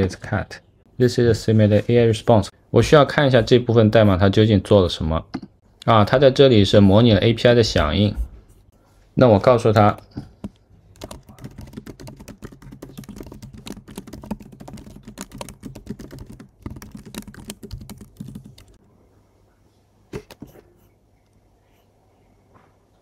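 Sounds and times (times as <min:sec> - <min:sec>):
typing on computer keyboard: 0:10.4 - 0:18.8.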